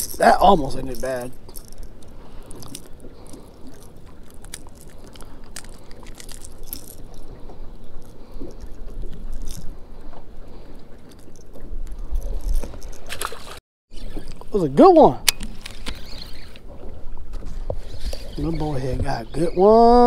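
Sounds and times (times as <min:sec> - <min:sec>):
clicks and scrapes of fishing hooks: 0:00.0 - 0:09.8, 0:11.0 - 0:13.5, 0:15.2 - 0:16.6.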